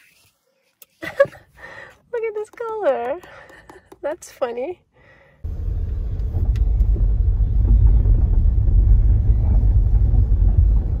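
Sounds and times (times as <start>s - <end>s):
car rumble inside cabin: 5.4s - 11.0s.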